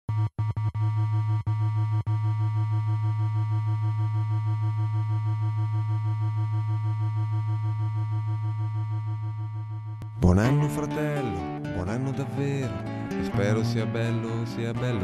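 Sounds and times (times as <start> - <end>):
pulsing synthesizer drone: 0.2 - 10.0.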